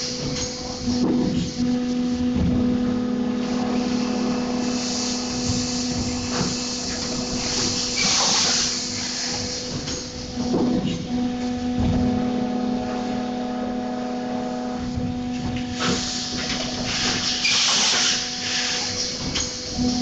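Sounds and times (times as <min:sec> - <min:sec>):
machine humming: 0:00.0 - 0:20.0
machine knocks: 0:00.1 - 0:01.6, 0:02.3 - 0:02.9, 0:05.3 - 0:12.2
air hissing: 0:03.4 - 0:10.3, 0:15.7 - 0:19.9.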